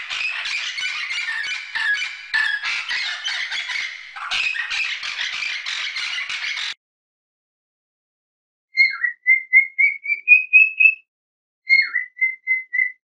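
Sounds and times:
parrots squawking: 0.0s - 6.8s.

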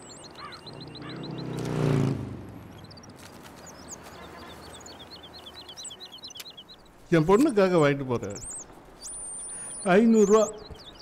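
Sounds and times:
small birds chirping: 0.0s - 11.0s
vehicle engine passing: 0.4s - 5.6s.

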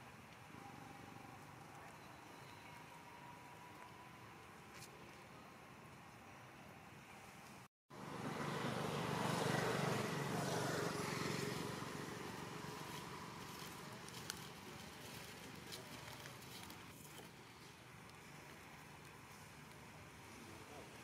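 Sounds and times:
motor vehicle passing: 8.0s - 14.1s.

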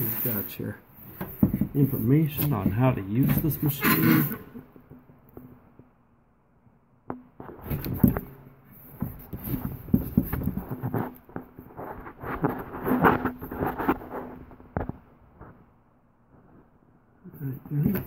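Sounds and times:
cardboard rustling and scraping: 0.0s - 4.6s, 7.4s - 15.6s.

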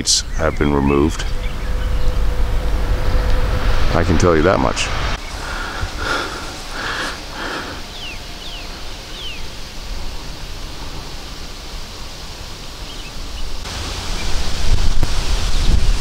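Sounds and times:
rustling noise: 5.1s - 7.9s
falling bird chirps: 5.2s - 9.6s.

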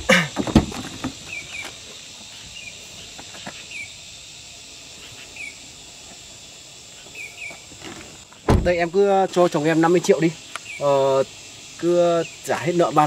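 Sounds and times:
high insect drone: 0.0s - 13.0s
bird chirps: 1.2s - 4.0s, 5.0s - 5.6s, 7.0s - 7.7s, 10.5s - 11.0s.

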